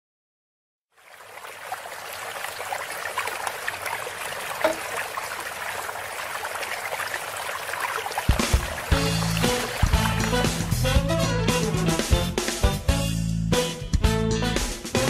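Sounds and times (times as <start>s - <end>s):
fountain water splashing: 0.9s - 12.5s.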